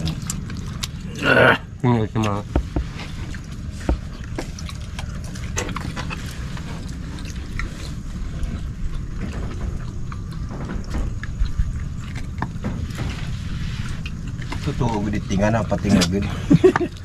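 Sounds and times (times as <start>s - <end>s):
wet slurping and chewing: 0.0s - 16.3s
steady low rumble: 0.0s - 17.0s.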